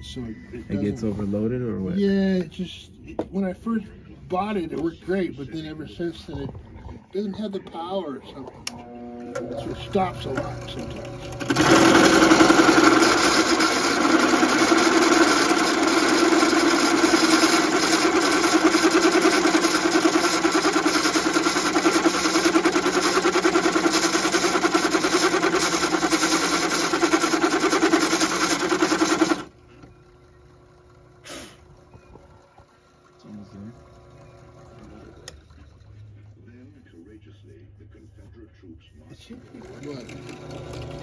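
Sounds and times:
drill press boring metal: 0:09.6 - 0:29.5.

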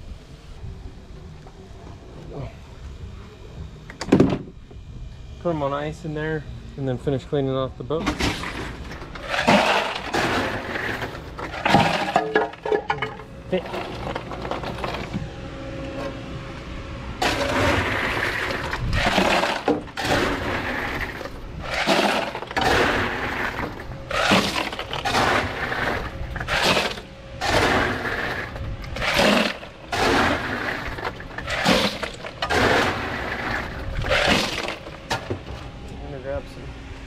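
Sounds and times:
crushed ice shovelled into cooler: 0:08.2 - 0:12.3, 0:17.2 - 0:34.9.

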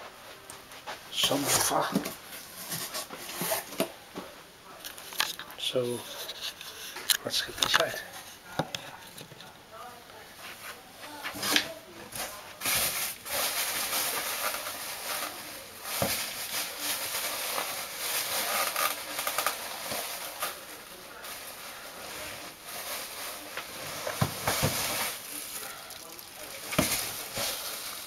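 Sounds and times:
plastic and cardboard rustling: 0:00.4 - 0:09.5, 0:10.4 - 0:28.0.

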